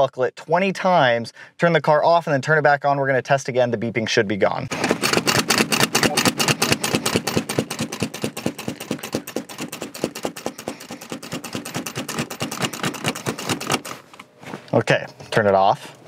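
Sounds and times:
seat belt buckle clicking: 6.3 - 14.3.

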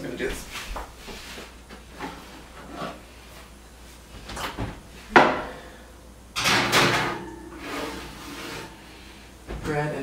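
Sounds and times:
oven door and rack clattering: 6.4 - 8.8.

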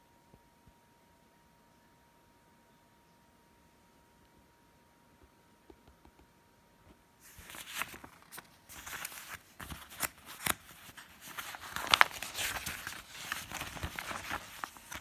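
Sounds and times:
paper leaflet rustling: 7.2 - 15.0.

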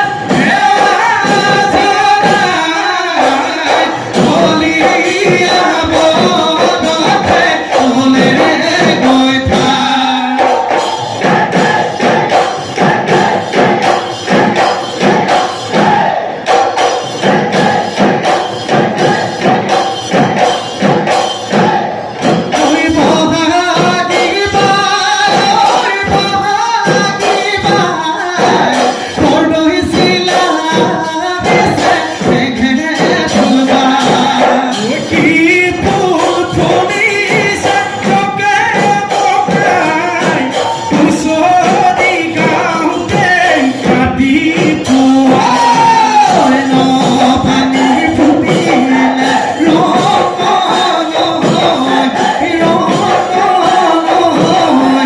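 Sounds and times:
drums beating fast: 0.0 - 55.0
men singing together: 0.0 - 55.0.

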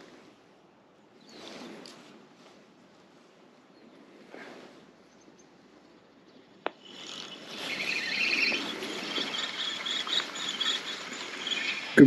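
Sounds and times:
fishing reel whirring: 6.6 - 12.0.

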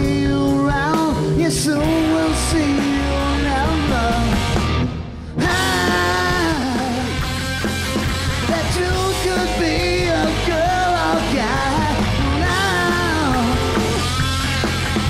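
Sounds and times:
man singing: 0.0 - 4.6, 5.4 - 7.4, 8.4 - 14.2
live rock band playing: 0.0 - 15.0.

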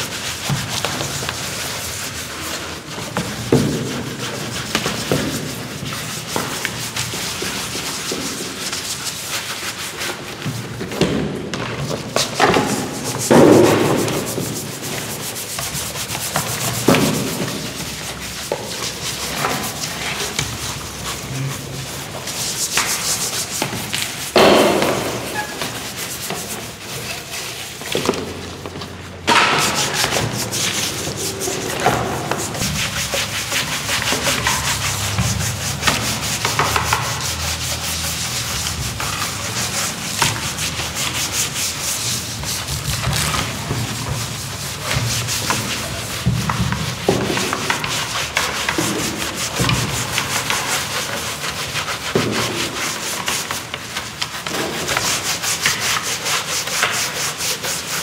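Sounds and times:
scouring pad scrubbing metal: 12.0 - 28.5, 29.4 - 58.0.

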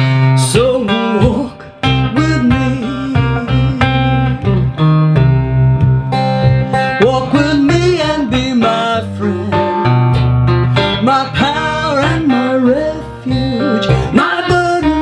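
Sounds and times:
blues guitar playing: 0.0 - 15.0
woman singing: 0.4 - 4.4, 11.0 - 15.0.

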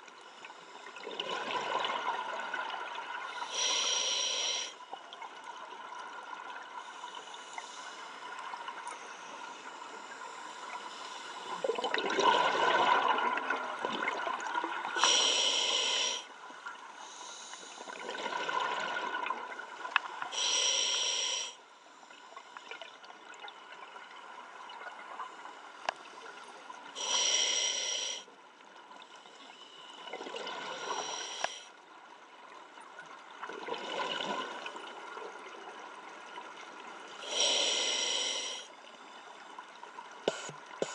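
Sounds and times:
hissing regulator inhalations: 3.5 - 4.8, 15.0 - 16.3, 20.4 - 21.6, 27.0 - 28.3, 30.8 - 31.7, 37.2 - 38.7, 40.3 - 40.9.

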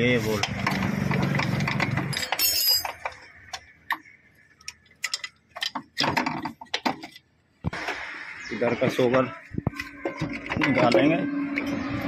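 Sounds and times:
metallic tool clicks and clinks: 2.1 - 3.2.

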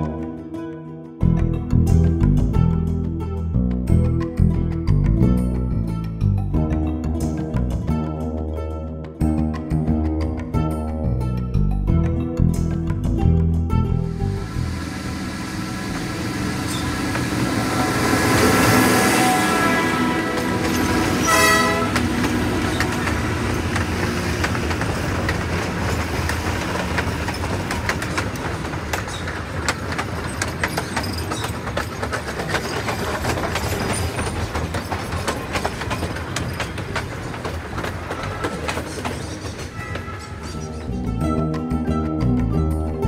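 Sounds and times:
train wheels rumbling and clicking: 14.1 - 41.7
train horn: 16.6 - 23.4.

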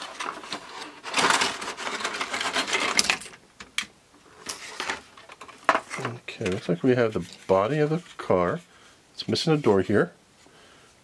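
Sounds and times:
cardboard packaging rustling: 0.0 - 3.4.

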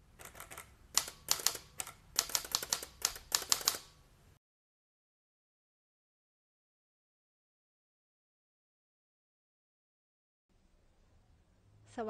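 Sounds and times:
typewriter key clacks: 1.0 - 3.9.

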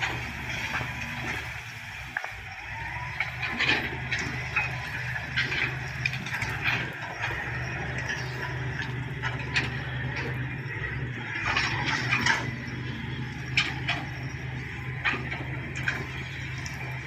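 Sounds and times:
heavy machinery engines running: 0.0 - 17.0
high squeaks and clatters: 11.3 - 17.0.

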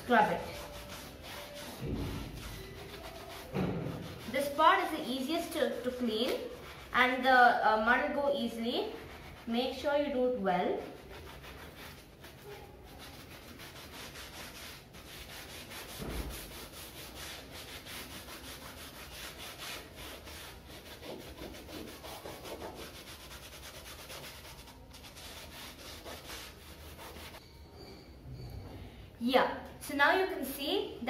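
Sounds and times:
scouring pad scrubbing: 0.0 - 6.9.

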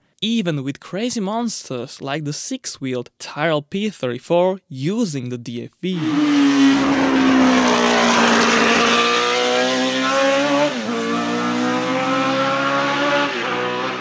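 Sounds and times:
racing car engine accelerating: 6.0 - 14.0.

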